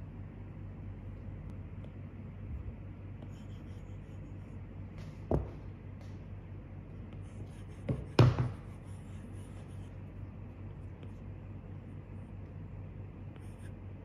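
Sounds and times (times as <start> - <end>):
stylus scratching on screen: 3.1 - 4.8, 7.0 - 12.5, 13.2 - 14.0.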